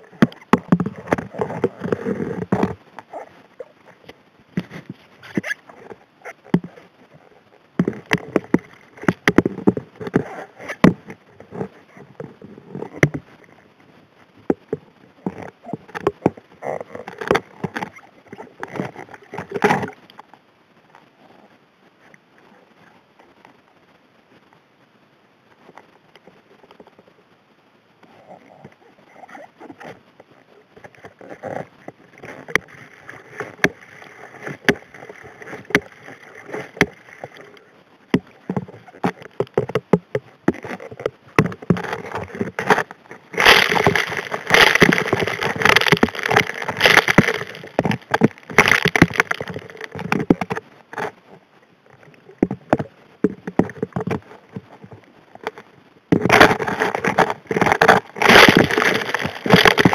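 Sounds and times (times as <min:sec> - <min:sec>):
rushing water: 0:25.4 - 0:59.9
gravel clattering against nozzle: 0:38.4 - 0:50.6, 0:55.5 - 0:59.9.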